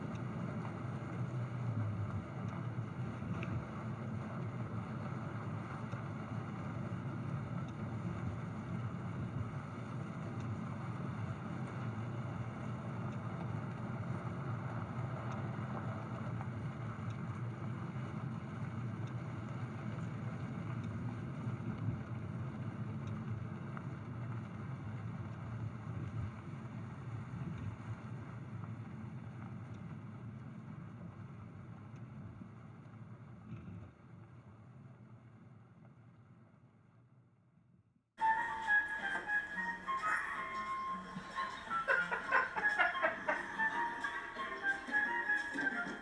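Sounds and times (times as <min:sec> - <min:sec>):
vehicle engine rumble: 0:00.0 - 0:36.4.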